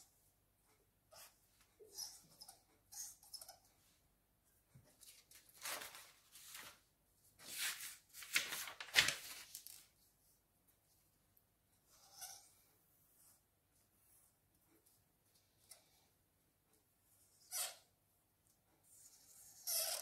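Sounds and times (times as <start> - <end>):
paper rustling and sliding: 5.0 - 9.9.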